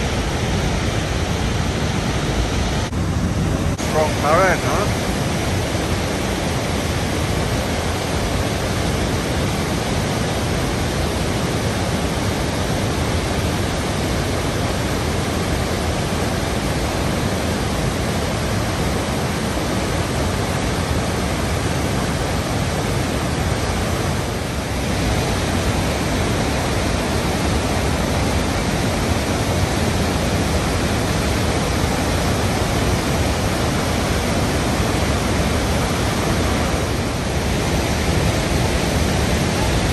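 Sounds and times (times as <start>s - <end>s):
waterfall rushing: 0.0s - 39.9s.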